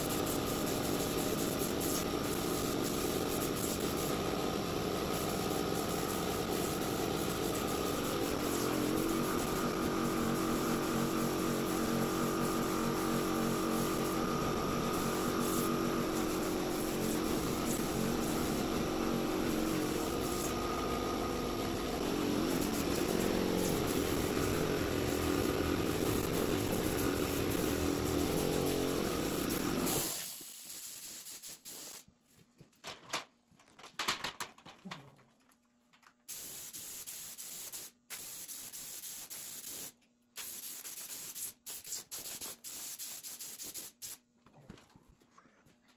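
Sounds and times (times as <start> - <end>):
air compressor running: 0.0 - 32.0.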